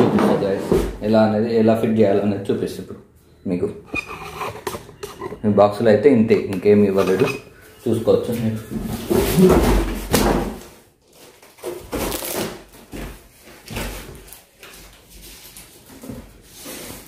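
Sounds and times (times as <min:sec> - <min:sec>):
metal parts knocking and scraping: 0:03.9 - 0:05.4.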